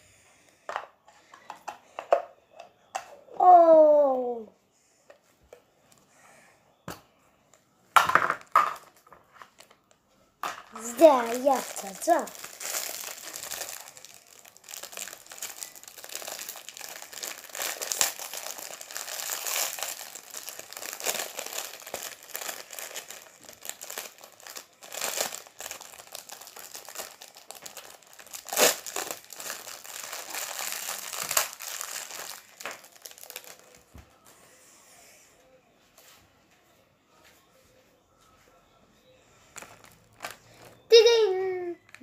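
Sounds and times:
plastic wrapper crinkling and tearing: 0:10.6 - 0:33.9, 0:39.6 - 0:42.0.

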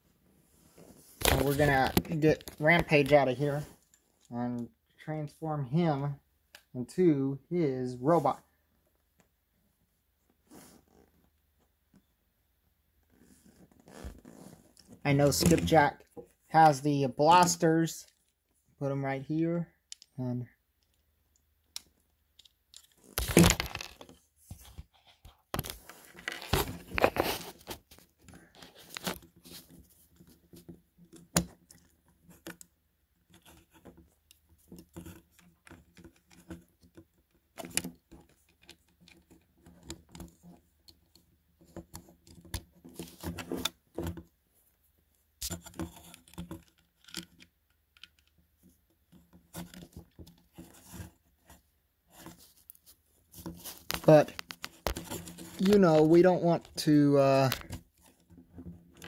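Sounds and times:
rustling and scraping: 0:00.0 - 0:04.7, 0:10.2 - 0:12.1, 0:13.0 - 0:18.7, 0:22.4 - 0:59.0.

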